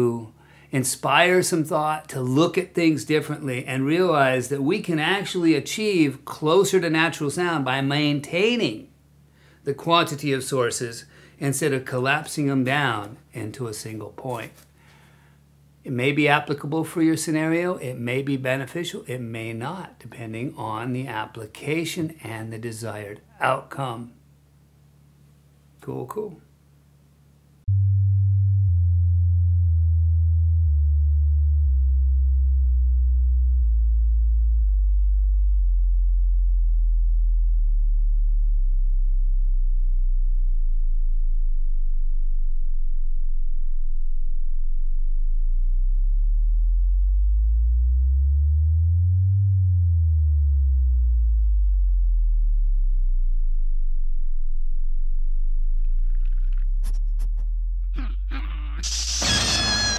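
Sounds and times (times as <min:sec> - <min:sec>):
deep electronic sine tone: 0:27.5 - 0:59.9.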